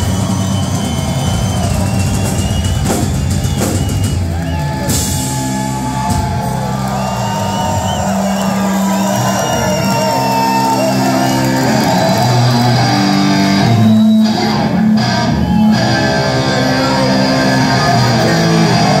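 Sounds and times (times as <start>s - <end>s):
live rock band playing: 0.0s - 19.0s
electric guitar: 9.4s - 19.0s.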